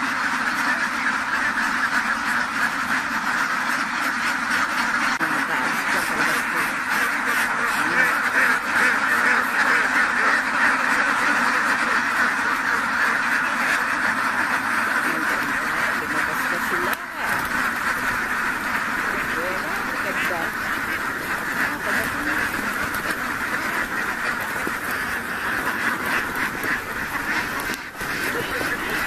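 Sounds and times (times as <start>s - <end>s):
flock of ducks quacking: 0.0s - 29.0s.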